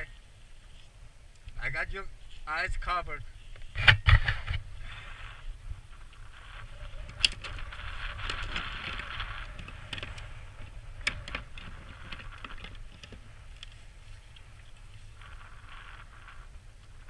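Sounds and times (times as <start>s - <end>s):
handling clicks and rustling: 6.6s - 15.2s.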